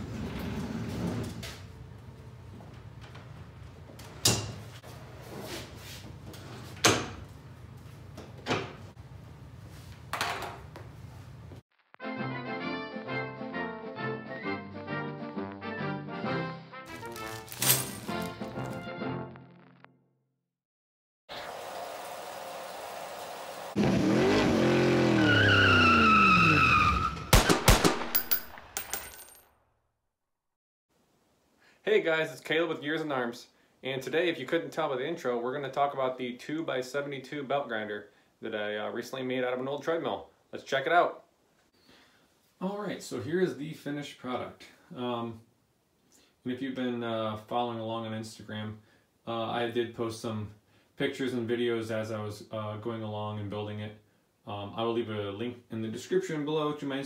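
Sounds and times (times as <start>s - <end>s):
tyre squeal: 25.0s - 27.3s
gunshots: 27.3s - 28.8s.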